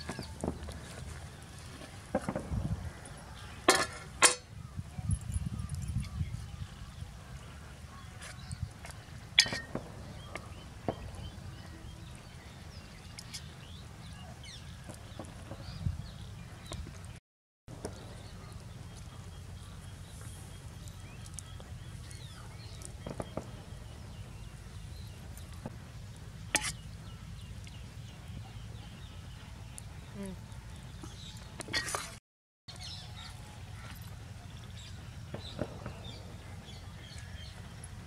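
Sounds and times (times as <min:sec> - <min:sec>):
spoon scraping metal pot: 0:26.6 - 0:26.8.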